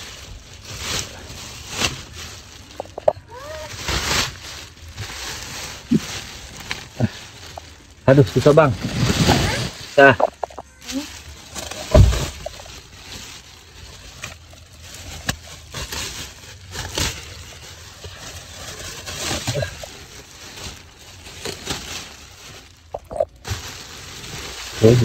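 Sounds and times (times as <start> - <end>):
plastic sheeting crinkling: 0.0 - 25.0
low thump: 11.9 - 12.4.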